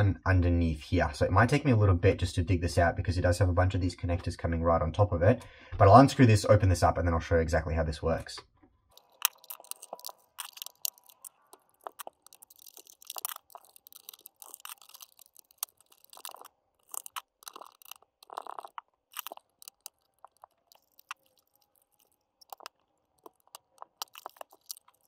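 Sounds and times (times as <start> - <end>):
clicks and rustles of handling wiring: 8.4 - 25.0.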